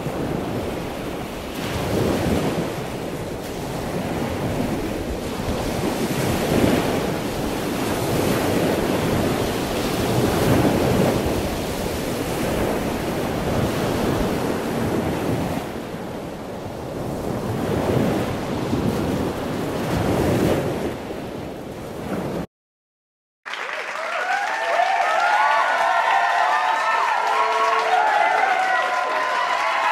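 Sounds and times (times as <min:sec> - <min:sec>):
ocean surf breaking: 0:00.0 - 0:22.5, 0:24.8 - 0:29.9
wind on microphone: 0:00.0 - 0:22.5.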